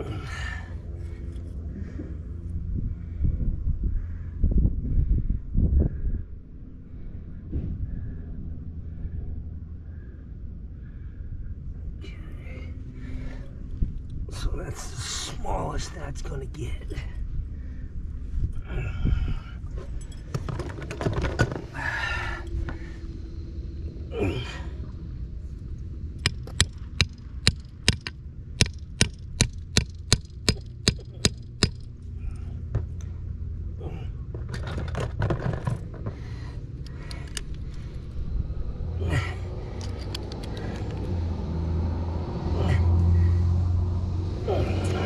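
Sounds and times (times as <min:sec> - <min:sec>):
low rumble: 0:00.0 - 0:45.0
tools scraping and knocking on metal: 0:26.2 - 0:31.9, 0:34.3 - 0:36.3.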